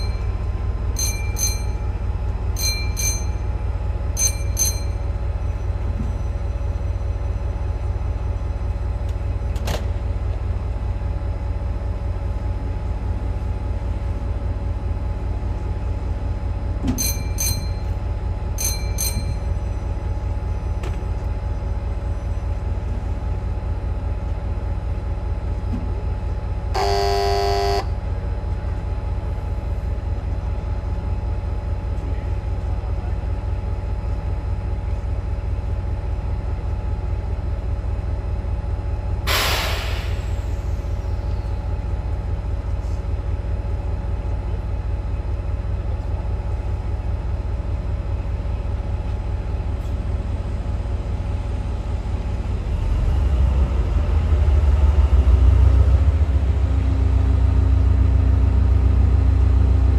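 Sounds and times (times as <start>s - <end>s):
train rumbling: 0.0s - 59.9s
train horn: 26.8s - 27.9s
hiss burst: 39.3s - 40.4s.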